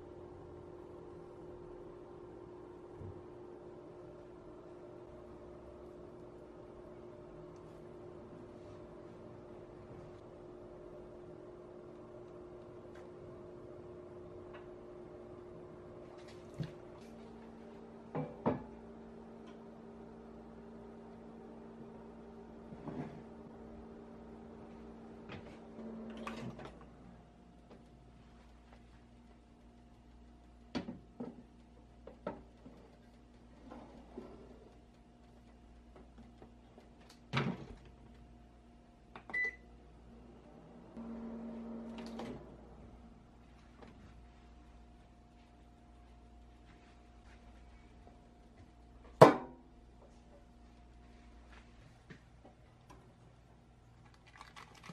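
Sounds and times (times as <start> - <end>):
microwave oven humming: 0.0 - 54.9.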